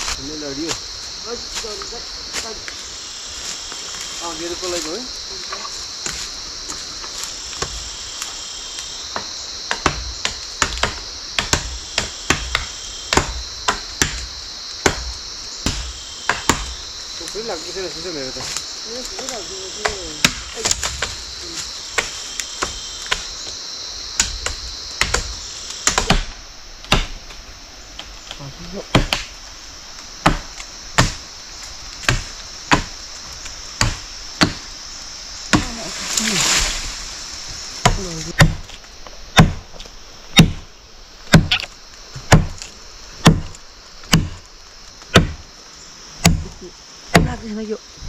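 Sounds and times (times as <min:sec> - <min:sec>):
insects droning: 0:00.0 - 0:48.0
blade chopping into wood: 0:09.7 - 0:16.7, 0:24.2 - 0:26.3, 0:26.9 - 0:27.2, 0:28.9 - 0:29.3, 0:30.2 - 0:31.2, 0:32.0 - 0:32.9, 0:37.8 - 0:38.8, 0:39.4 - 0:39.6, 0:40.4 - 0:40.6, 0:41.3 - 0:44.4, 0:45.1 - 0:45.4, 0:46.2 - 0:47.4
twigs snapping: 0:41.3 - 0:45.4.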